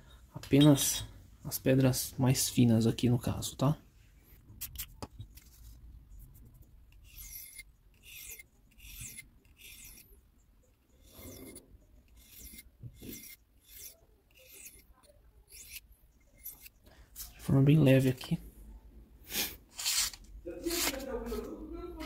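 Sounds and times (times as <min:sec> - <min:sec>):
knife scraping on sharpening stone: 0:06.9 - 0:10.2, 0:10.9 - 0:16.8.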